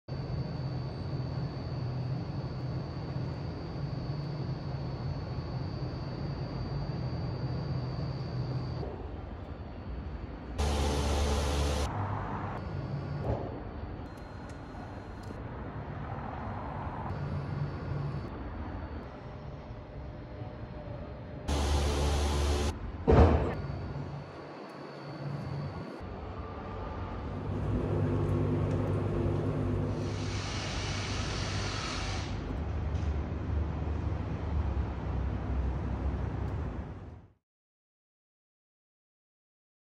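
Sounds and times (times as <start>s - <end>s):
distant traffic hiss: 10.6s - 13.1s, 27.2s - 32.6s
traffic engine hum: 10.6s - 14.1s, 21.5s - 23.0s, 26.0s - 30.3s
band of hiss: 30.0s - 32.5s.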